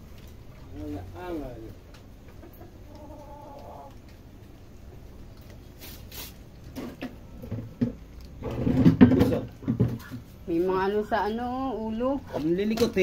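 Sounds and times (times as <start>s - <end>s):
puppies chewing kibble: 0.0s - 5.8s, 6.4s - 11.1s.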